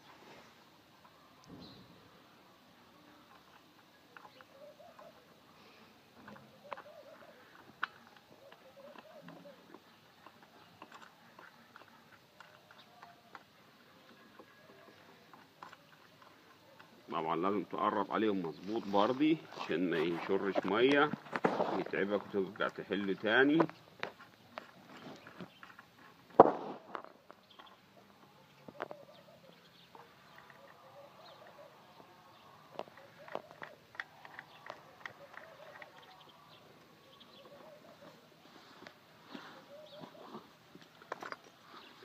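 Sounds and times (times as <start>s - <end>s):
faint bird calls: 4.0s - 10.4s, 27.0s - 40.8s
sharp knock: 26.4s - 26.8s.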